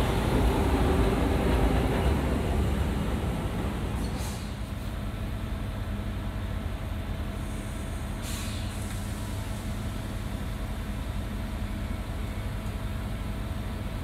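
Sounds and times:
electric train humming: 0.0s - 4.2s
brief hiss: 4.0s - 4.7s, 7.5s - 9.3s.

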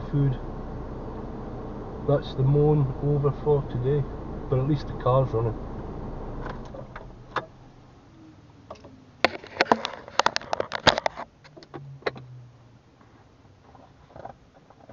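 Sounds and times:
low hum: 0.0s - 9.2s.

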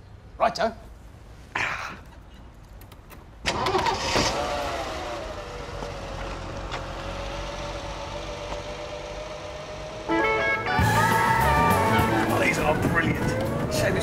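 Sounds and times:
car engine starting and idling: 2.8s - 14.0s.

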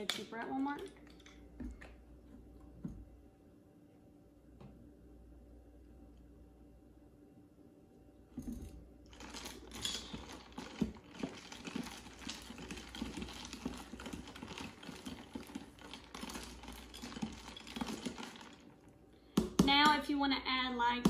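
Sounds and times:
ice cubes clinking in plastic cup: 9.1s - 18.8s.

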